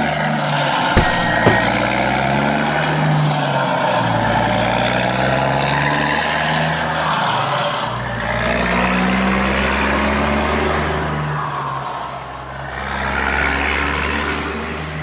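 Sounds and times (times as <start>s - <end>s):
truck engine running: 0.9s - 2.0s.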